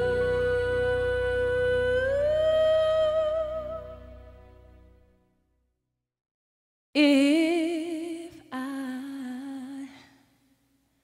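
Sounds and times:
woman singing with vibrato: 0.0 - 4.2, 7.0 - 10.2.

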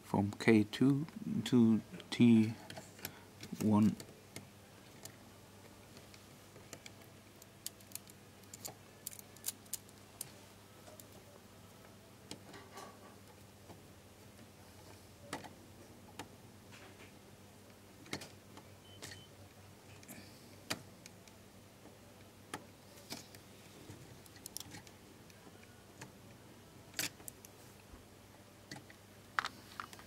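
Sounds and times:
wire clicking against plastic terminals: 6.6 - 11.2, 24.2 - 25.4.

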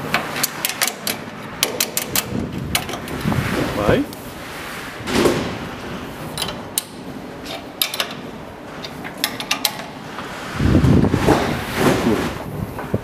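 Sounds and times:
low rumbling noise: 2.2 - 6.3, 10.2 - 13.0.

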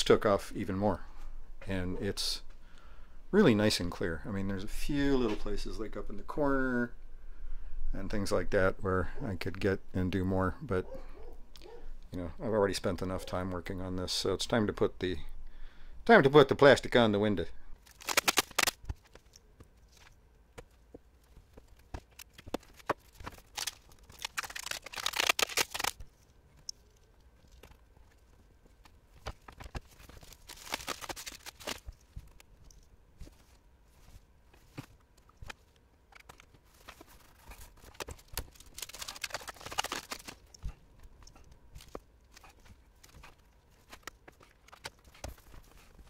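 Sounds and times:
plastic peeling and crinkling: 17.8 - 20.2, 21.2 - 46.0.

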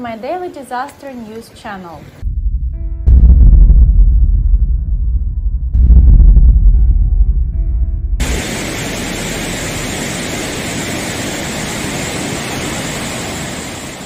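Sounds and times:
deep rumble: 2.2 - 13.2
river pouring over a weir: 8.2 - 14.0.

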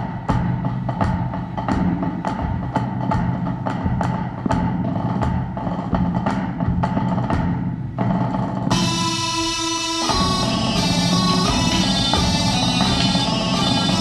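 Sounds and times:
low steady drum: 0.0 - 9.0
sustained melody notes: 8.7 - 14.0.

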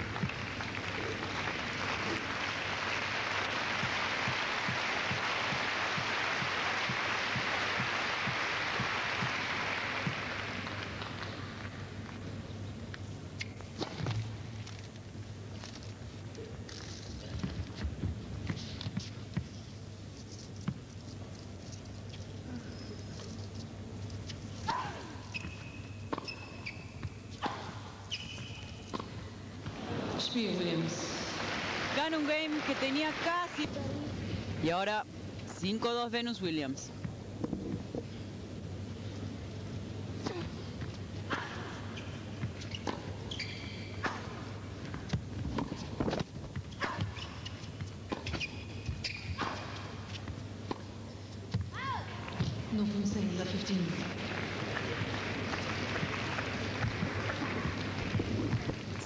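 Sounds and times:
crowd applauding: 0.0 - 11.3, 31.0 - 33.6, 54.1 - 59.0
tennis shoes squeaking on court: 25.2 - 29.2, 41.8 - 51.6.

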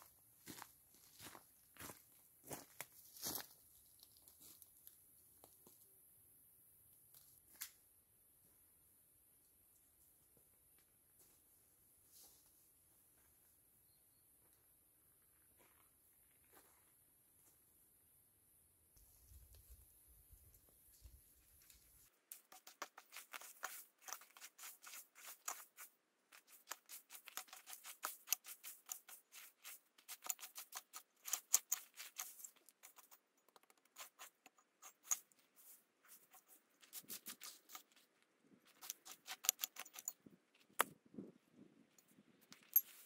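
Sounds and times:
digging tool scraping dry soil: 21.9 - 40.2.

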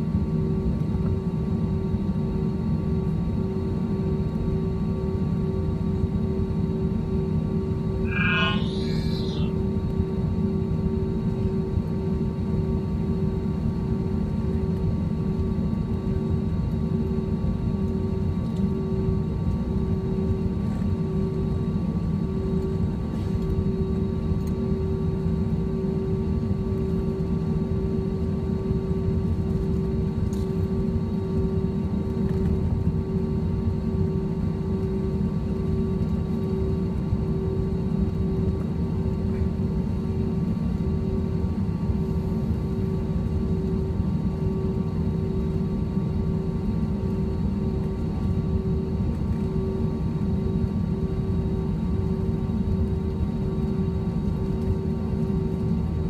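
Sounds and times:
constant engine whine: 0.0 - 56.0
jet engine rumble: 2.8 - 14.6.

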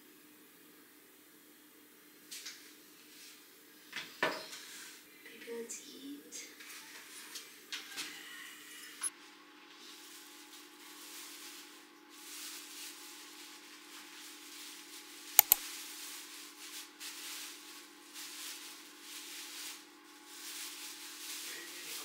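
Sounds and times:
sharp clicks: 15.4 - 15.6.

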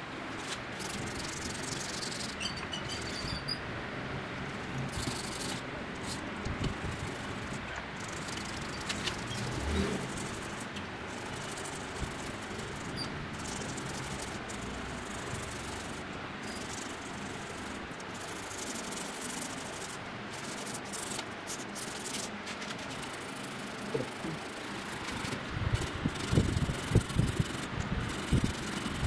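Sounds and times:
hand sanding rubbing: 0.4 - 3.4, 4.9 - 29.0.

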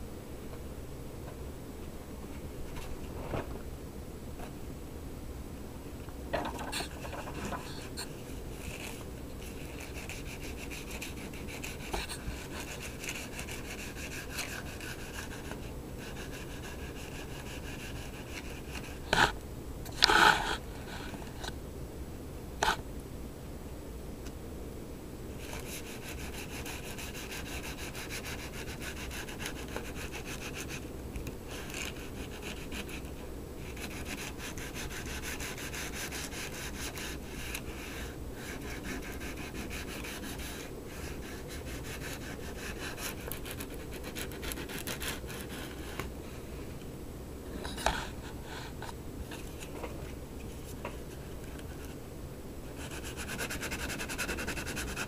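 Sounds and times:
sandpaper rubbing on metal: 52.8 - 55.0.

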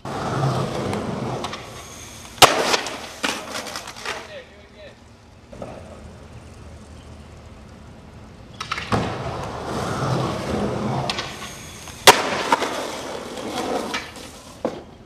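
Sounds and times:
skateboard wheels rolling on concrete: 0.0 - 15.0
skateboard clicks: 0.6 - 4.4, 5.5 - 15.0
skateboard landing slap: 0.7 - 4.2, 8.6 - 9.9, 10.5 - 14.9.

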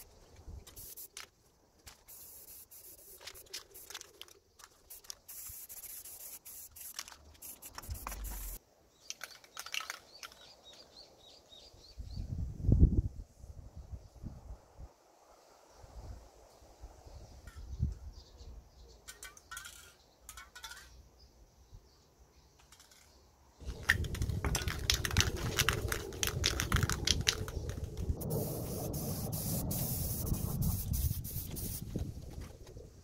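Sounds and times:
aerosol can rattling as shaken: 0.6 - 1.3, 1.9 - 10.5, 23.6 - 32.6
spray can hissing: 0.7 - 1.3, 1.9 - 8.6, 24.0 - 32.0.

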